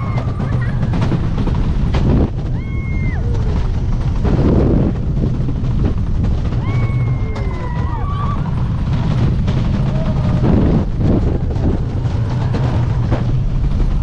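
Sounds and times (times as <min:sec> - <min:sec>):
rider screaming: 0:00.0 - 0:00.8, 0:02.5 - 0:03.9, 0:06.6 - 0:08.8, 0:09.7 - 0:13.1
roller coaster rumble: 0:00.0 - 0:14.0
rushing wind: 0:00.0 - 0:14.0.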